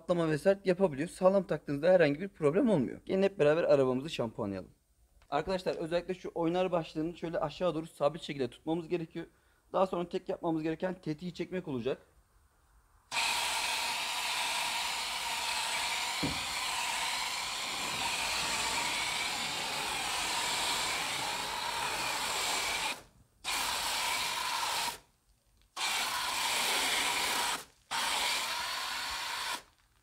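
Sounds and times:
foam gun spraying hiss: 15.8 - 16.6.

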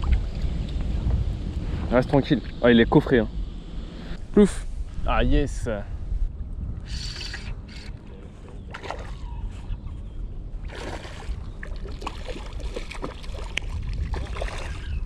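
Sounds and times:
wind buffeting microphone: 0.0 - 15.0
water sloshing: 8.6 - 9.3, 10.6 - 15.0.

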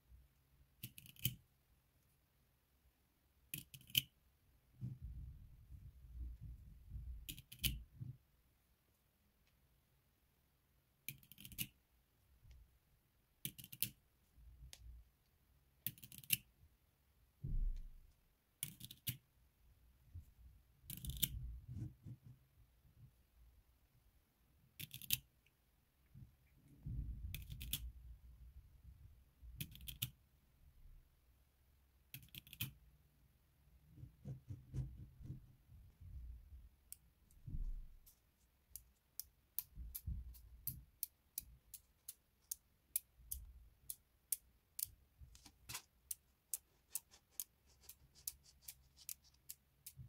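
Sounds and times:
rubbing and handling noise: 20.1 - 22.8, 33.9 - 36.2, 44.8 - 50.0.

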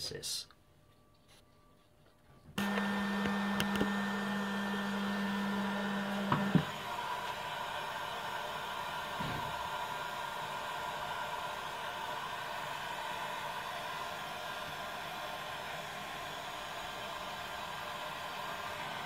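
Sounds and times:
heat gun blowing air: 2.6 - 19.0.

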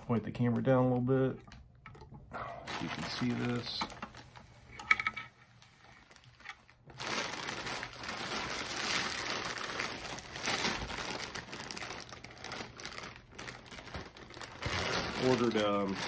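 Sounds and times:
plastic mailer bag crinkling: 2.6 - 4.5, 5.6 - 16.0.

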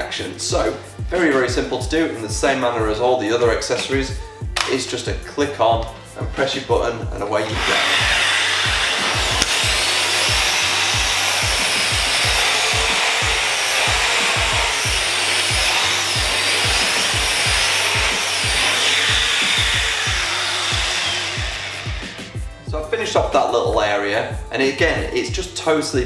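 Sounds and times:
background music with steady beat: 0.0 - 26.0
vacuum cleaner running: 7.3 - 22.7.

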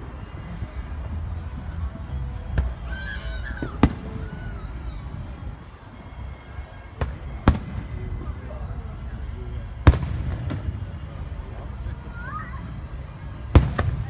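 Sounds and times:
distant fireworks bursting: 0.0 - 2.9, 3.6 - 4.8, 6.4 - 11.8, 12.6 - 14.0.

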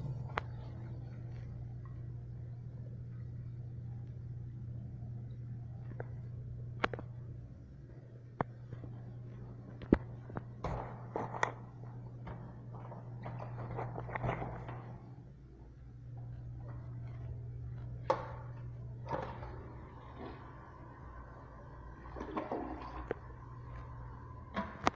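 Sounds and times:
low room hum: 0.0 - 24.9.

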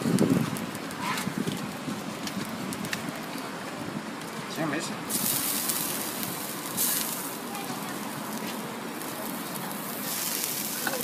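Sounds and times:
pancakes sizzling on griddle: 0.0 - 11.0.

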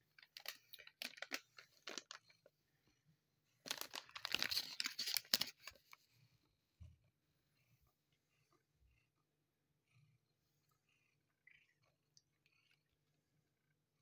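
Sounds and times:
plastic pouch crinkling: 0.2 - 2.3, 3.6 - 5.8.

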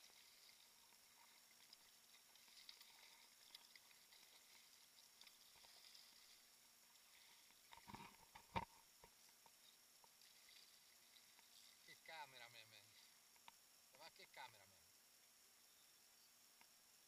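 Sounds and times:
water lapping against kayak: 0.0 - 13.5.

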